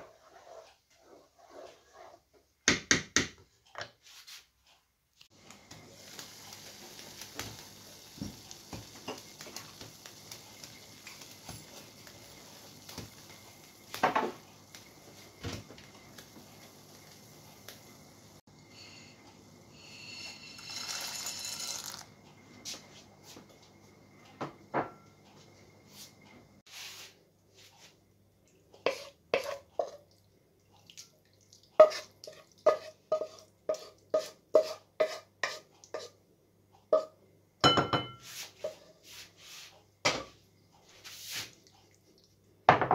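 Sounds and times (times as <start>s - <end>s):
wooden spoon scraping a pot: 0.0s - 2.5s, 18.8s - 22.0s, 28.8s - 30.0s, 31.8s - 36.2s
water boiling in a pot: 5.3s - 22.2s
dry pasta poured into water: 20.5s - 22.1s
spoon knocking on pot and plate: 37.0s - 38.2s.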